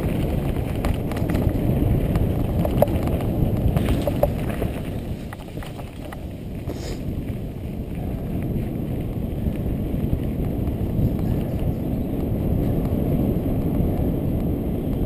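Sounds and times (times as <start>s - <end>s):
bike clacking on bumps: 0.0s - 15.0s
bike tyres rumbling on dirt: 0.0s - 15.0s
wind buffeting microphone: 0.0s - 15.0s.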